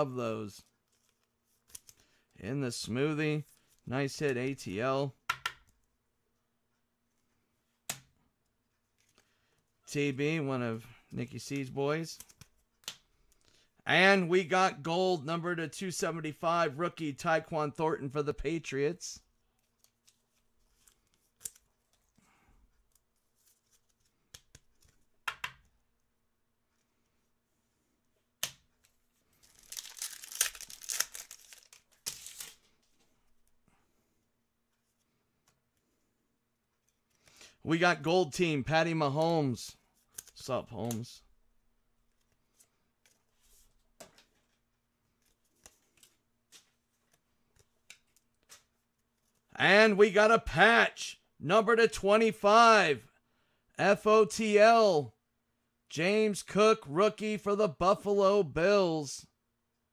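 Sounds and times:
cards clicking and tapping: 0:05.3 - 0:05.8, 0:12.2 - 0:13.4, 0:23.6 - 0:25.8.

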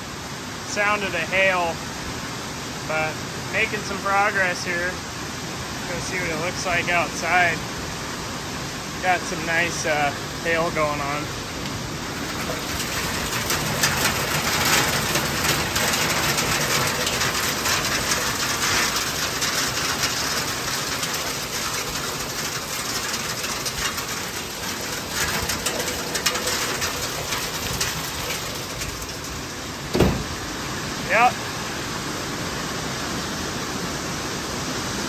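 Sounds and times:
hailstones striking surfaces: 0:11.7 - 0:30.5.

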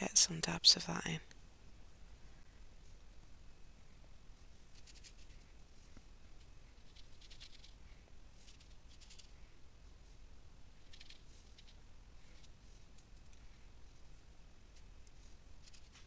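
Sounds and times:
paintbrush scratching on fabric: 0:04.4 - 0:10.2, 0:10.8 - 0:16.0.

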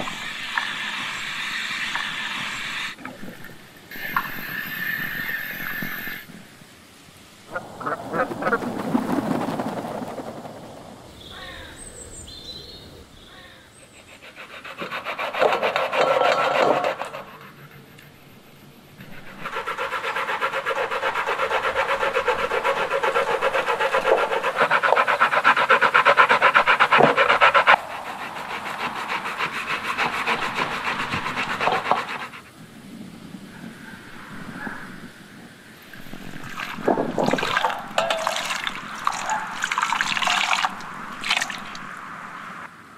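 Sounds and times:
coconut grated on metal grater: 0:14.2 - 0:17.4, 0:19.0 - 0:32.4, 0:37.7 - 0:40.8.

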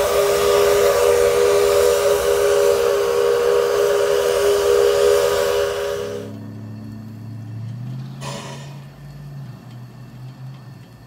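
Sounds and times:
steam locomotive whistle: 0:00.0 - 0:06.6
steam hiss: 0:00.0 - 0:06.7, 0:08.2 - 0:09.5.

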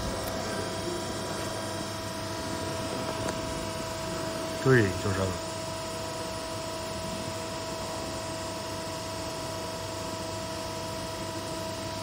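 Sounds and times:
machine humming with steady tones: 0:00.0 - 0:12.0.

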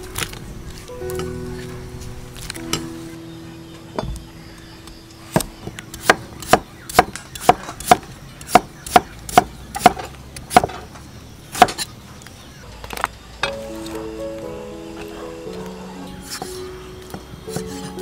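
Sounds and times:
knife chopping on wooden block: 0:05.4 - 0:10.8.

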